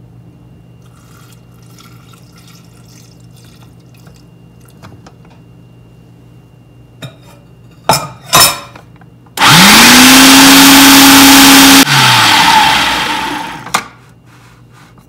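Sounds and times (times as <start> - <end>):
food processor motor running: 9.4 - 13.8.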